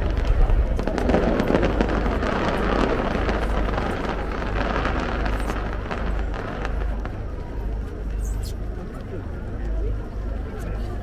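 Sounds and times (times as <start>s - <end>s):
fireworks crackling: 0.0s - 8.7s
fireworks bursts rumbling: 0.0s - 9.7s.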